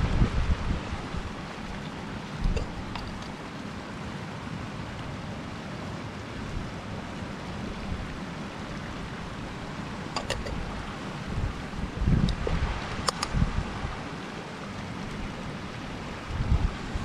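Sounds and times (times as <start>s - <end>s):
rushing wind: 0.0s - 17.0s
light clicks: 12.2s - 13.4s.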